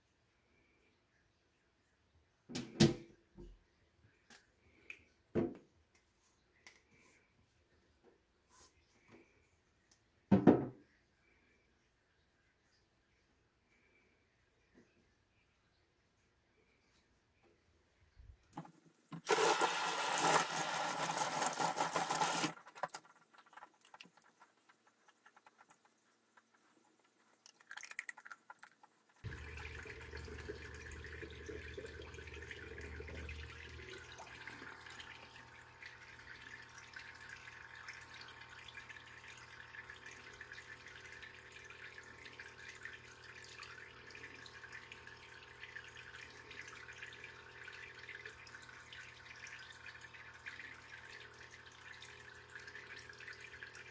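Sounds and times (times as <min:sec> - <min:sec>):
tap water running into sink: 0:18.6 - 0:53.9
aquarium pump humming: 0:29.2 - 0:53.9.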